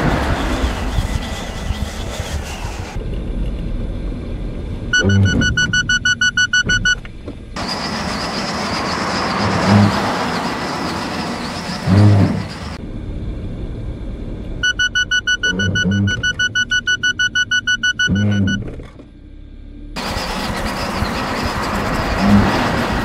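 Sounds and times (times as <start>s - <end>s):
road and wind noise: 0.0s - 23.0s
rapid warning beeps: 4.9s - 7.0s, 14.6s - 18.7s.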